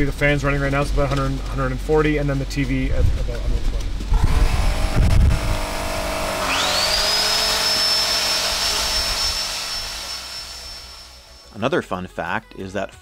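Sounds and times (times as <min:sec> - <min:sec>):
miter saw motor whine: 0:04.1 - 0:11.6.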